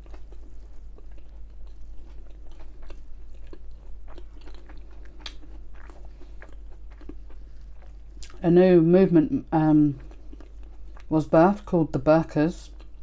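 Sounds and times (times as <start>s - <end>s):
person chewing food: 0.0s - 8.4s, 9.8s - 11.1s, 12.7s - 13.0s
steady low hum: 0.0s - 13.0s.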